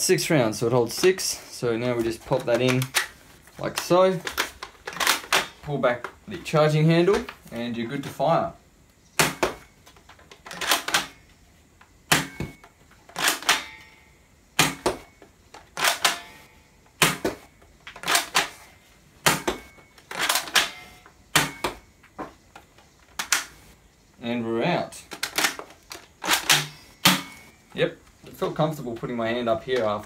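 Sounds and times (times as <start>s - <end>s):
toy rifle plastic clacks: 2.3s - 6.2s.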